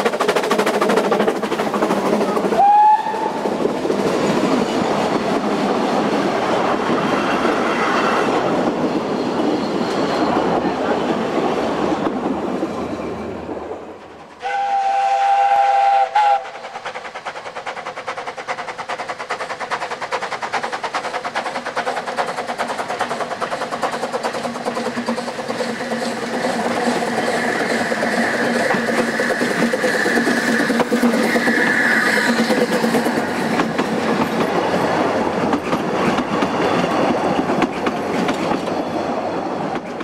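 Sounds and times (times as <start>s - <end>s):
railway coaches clattering past: 0.0s - 40.0s
steam locomotive whistle: 2.5s - 3.4s, 14.4s - 16.8s.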